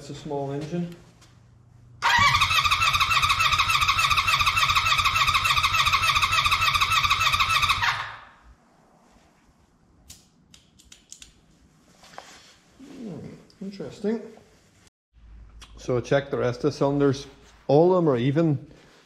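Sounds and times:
engine starter whine pulsing: 0:02.0 - 0:08.3.

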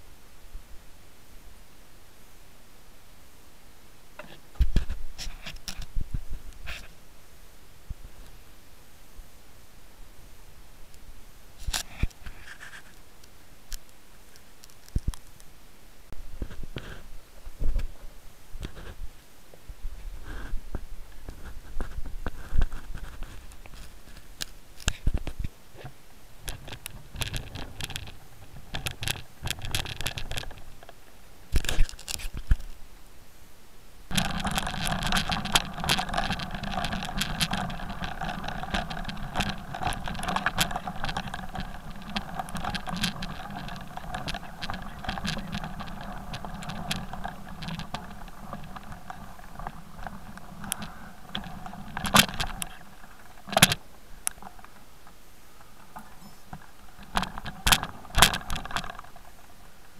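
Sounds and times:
clicks and rattles: 0:21.3 - 0:32.8, 0:34.1 - 0:59.9
tyres crunching over stony trail: 0:34.1 - 0:59.9.

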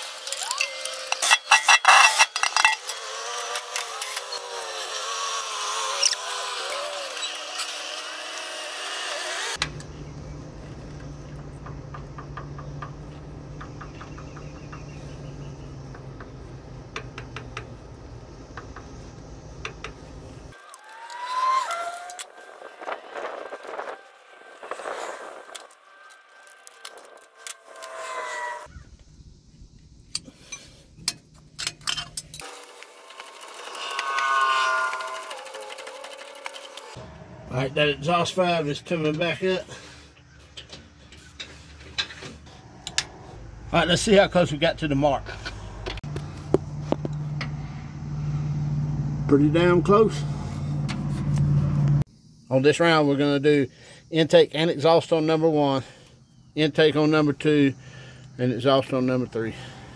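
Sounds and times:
hand tools clicking on metal: 0:00.0 - 0:04.7, 0:30.1 - 0:37.0
rising whine: 0:08.5 - 0:29.9, 0:32.4 - 0:39.4, 0:42.5 - 0:52.1.

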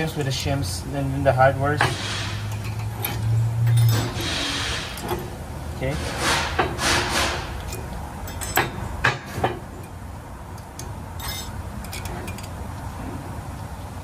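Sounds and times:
metal clips scraping: 0:01.7 - 0:12.9.

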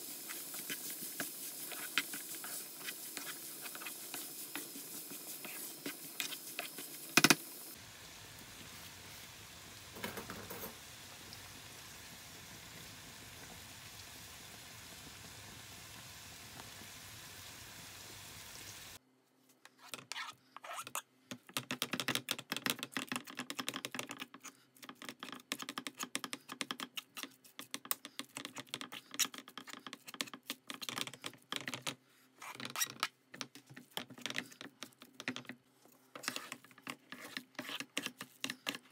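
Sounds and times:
food sizzling in a frying pan: 0:00.0 - 0:19.0
fork scraping against pan: 0:36.2 - 0:38.8.

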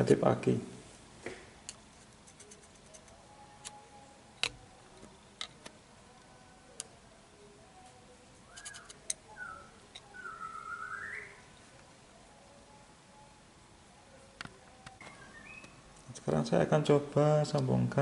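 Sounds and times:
bird calling: 0:08.5 - 0:11.5, 0:15.0 - 0:15.8.

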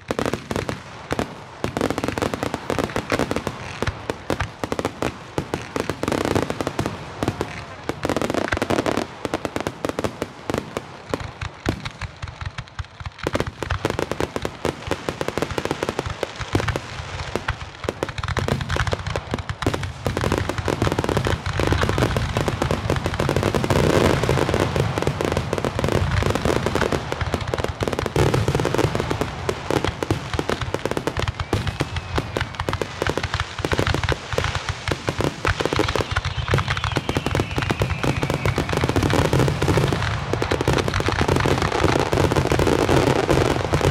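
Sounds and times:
fireworks bursting and crackling: 0:00.0 - 0:43.9
firework whistle gliding down: 0:35.5 - 0:39.7.

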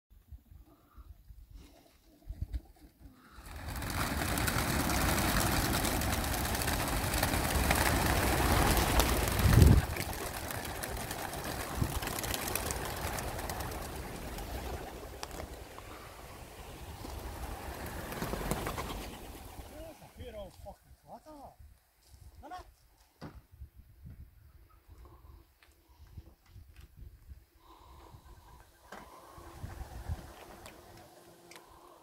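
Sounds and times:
pigeon wings clattering: 0:02.7 - 0:16.1, 0:16.9 - 0:20.0.

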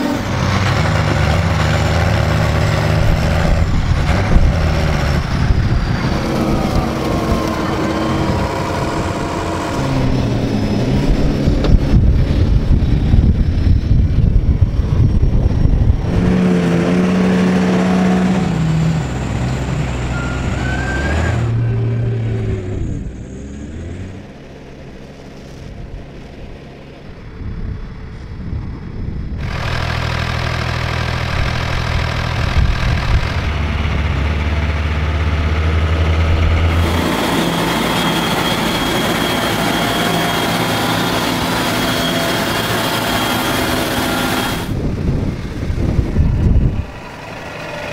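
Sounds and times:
tractor engines revving: 0:00.0 - 0:47.9.

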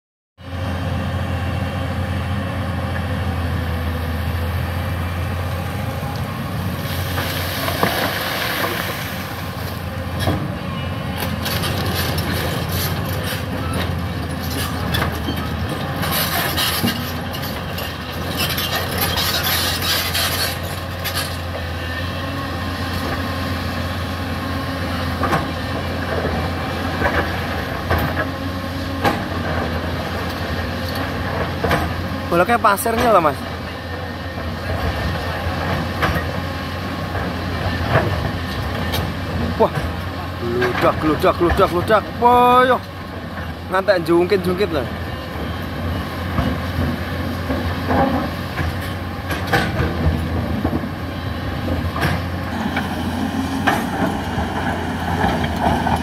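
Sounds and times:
excavator diesel engine running: 0:00.4 - 0:56.0
hiss and clatter of digging: 0:06.8 - 0:09.8, 0:14.4 - 0:21.5.

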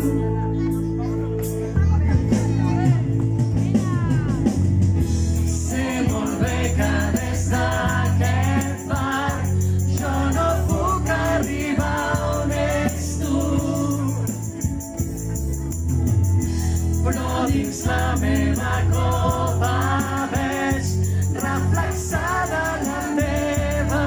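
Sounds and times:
voices singing in chorus: 0:05.4 - 0:14.6, 0:16.9 - 0:24.0
dance band playing slow song: 0:13.4 - 0:24.0.

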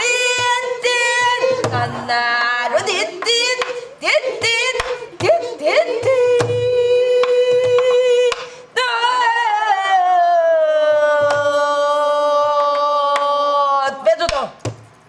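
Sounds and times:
woman singing long held notes: 0:00.0 - 0:13.7
barrel drum strokes: 0:01.2 - 0:03.4.

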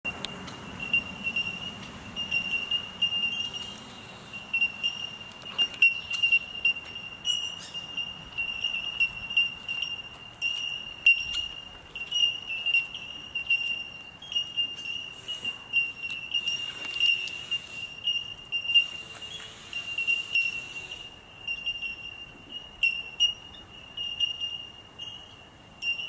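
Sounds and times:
birds calling with bell-like pings: 0:00.1 - 0:26.0.

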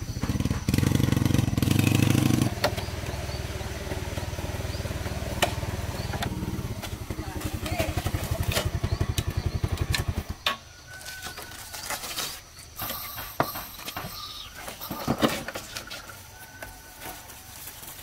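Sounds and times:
motorbike engine running: 0:00.0 - 0:10.4
birds calling: 0:00.0 - 0:18.0.

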